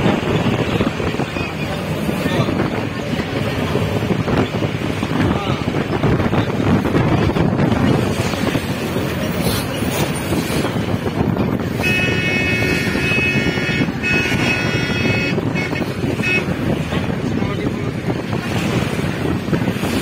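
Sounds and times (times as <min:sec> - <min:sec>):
wind rush and road noise: 0:00.0 - 0:20.0
vehicle horn honking: 0:11.7 - 0:16.8.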